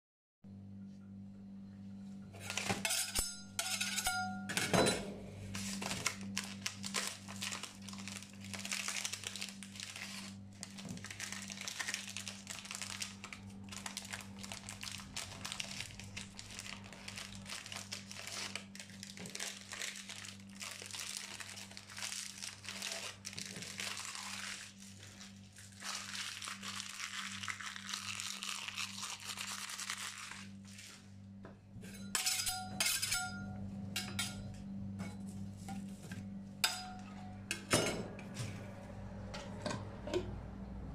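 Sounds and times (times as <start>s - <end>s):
steady low hum: 0.5s - 18.9s, 30.1s - 40.9s
plastic wrappers crinkling: 5.5s - 31.1s.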